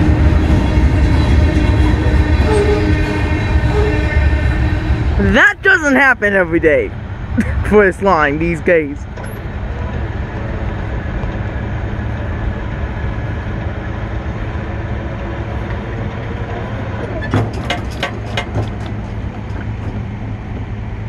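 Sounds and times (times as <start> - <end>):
freight train wheels rumbling: 0.0 - 21.0
sharp clacks of train: 9.0 - 21.0.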